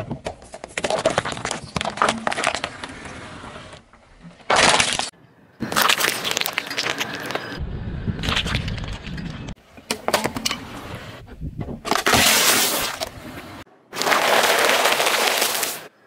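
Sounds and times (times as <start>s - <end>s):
puffed snacks crackling: 14.0s - 15.9s.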